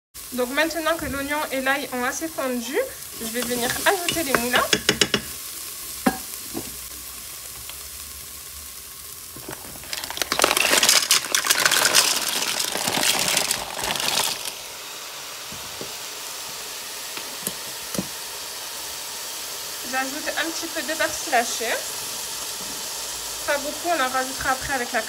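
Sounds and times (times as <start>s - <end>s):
onion and garlic sizzling in butter: 0.2s - 25.0s
mussel shells clattering in pot: 9.4s - 14.5s.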